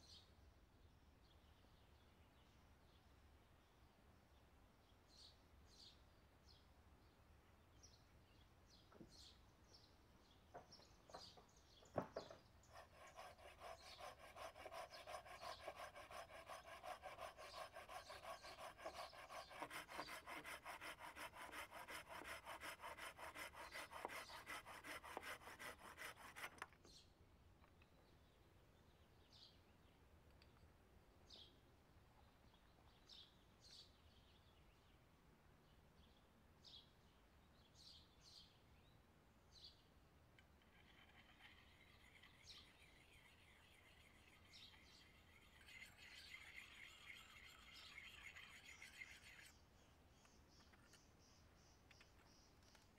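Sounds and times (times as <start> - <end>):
hand saw cutting log: 12.6 - 26.7, 40.8 - 49.6.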